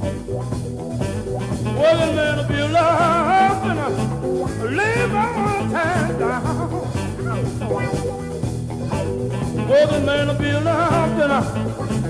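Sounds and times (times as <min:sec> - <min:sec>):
drums: 0:00.0 - 0:12.0
electric guitars: 0:00.0 - 0:12.0
man singing: 0:01.8 - 0:08.0, 0:09.6 - 0:12.0.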